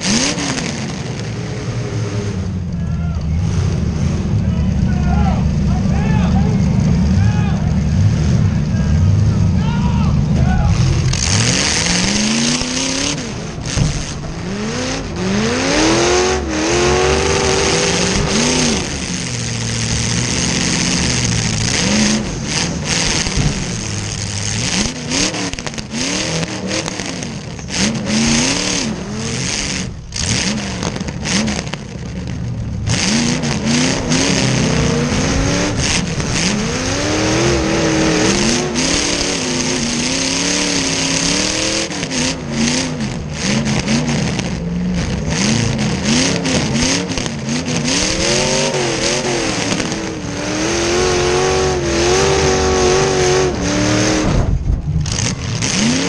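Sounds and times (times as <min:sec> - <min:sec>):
car engine revving: 0:00.0 - 0:56.0
knocks and rattles: 0:10.8 - 0:14.6, 0:19.3 - 0:26.0, 0:54.3 - 0:56.0.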